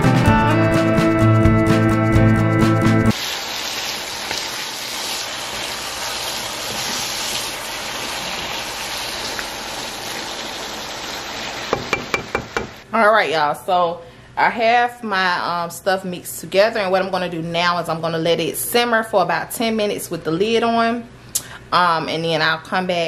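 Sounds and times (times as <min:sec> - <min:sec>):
food sizzling in a pan: 0:03.1 - 0:12.8
knocks: 0:11.7 - 0:12.8.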